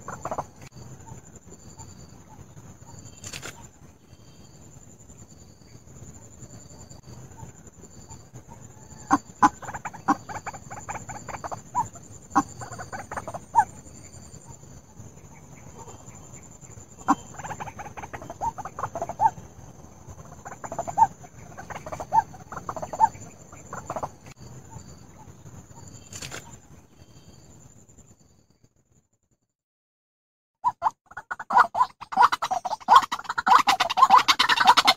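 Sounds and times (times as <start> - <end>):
bird harsh repeated calls: 8.9 - 13.8, 17.0 - 24.8, 30.6 - 34.9.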